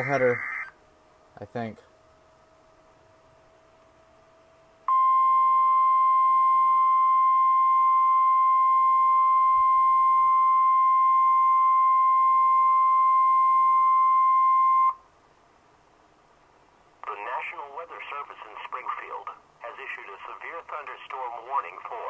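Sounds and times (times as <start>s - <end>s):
loud steady warning beep: 4.9s - 15.0s.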